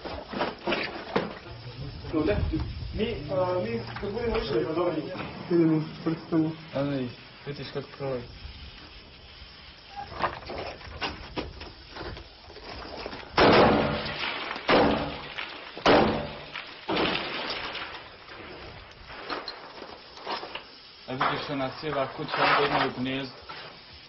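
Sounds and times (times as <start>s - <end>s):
echoing gunshots: 13.4s - 15.2s, 15.8s - 16.4s.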